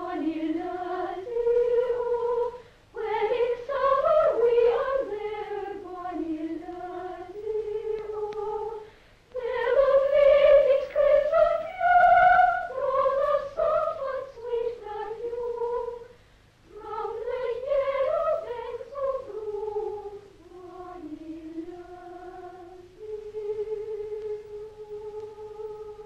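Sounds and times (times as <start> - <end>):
high voice singing slow melody: 16.7 - 26.0.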